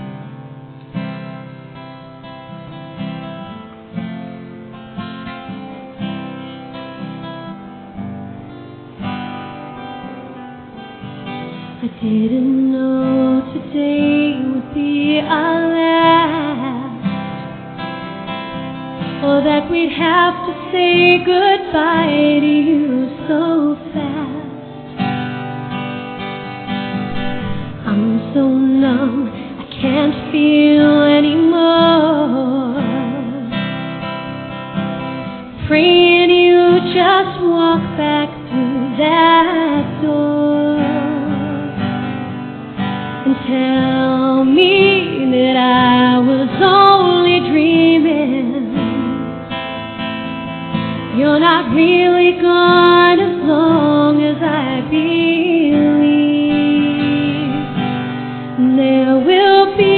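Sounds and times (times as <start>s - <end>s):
acoustic guitar: 0.0s - 59.9s
woman singing: 11.6s - 17.6s, 19.0s - 25.0s, 27.8s - 34.0s, 35.5s - 42.2s, 43.1s - 49.6s, 50.8s - 59.9s.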